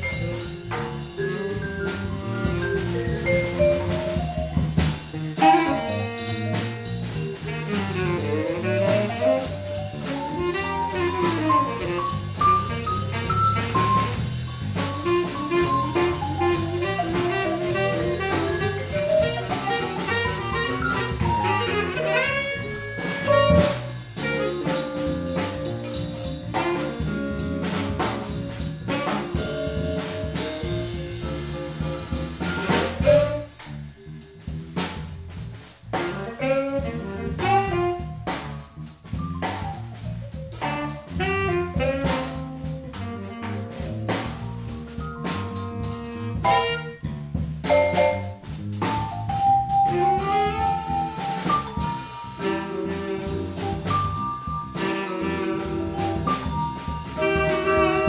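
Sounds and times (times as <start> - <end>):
vibraphone: 0.0 - 4.9, 29.0 - 32.1, 47.6 - 48.4
drum kit: 0.0 - 58.0
electric bass: 0.0 - 58.0
tenor saxophone: 5.4 - 31.5, 35.9 - 38.6, 40.6 - 47.2, 49.8 - 58.0.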